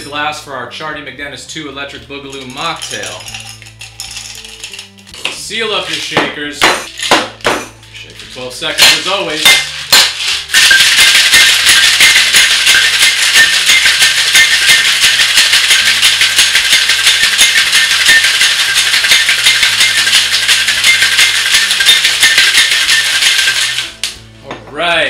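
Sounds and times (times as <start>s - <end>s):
faint background music: 0.0s - 25.0s
ice rattling in cocktail shakers: 2.3s - 6.2s, 8.1s - 24.0s.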